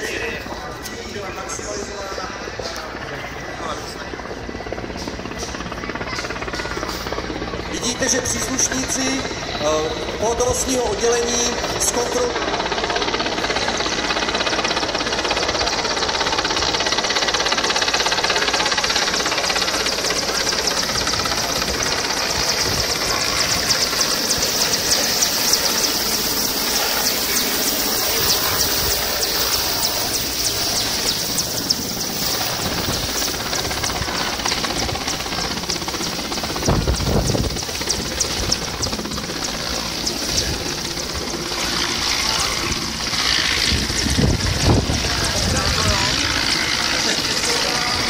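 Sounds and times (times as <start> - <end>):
helicopter rotor chop and turbine whine: 0.0 - 48.0
wind buffeting microphone: 20.5 - 26.5, 27.6 - 41.8, 42.4 - 48.0.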